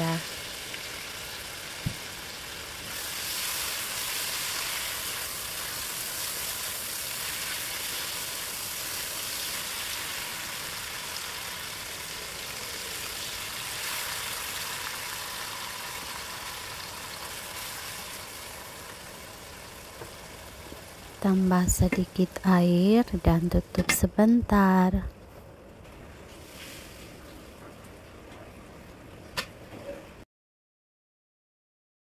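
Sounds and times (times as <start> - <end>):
food sizzling in a wok: 0.0 - 23.3, 26.3 - 27.2.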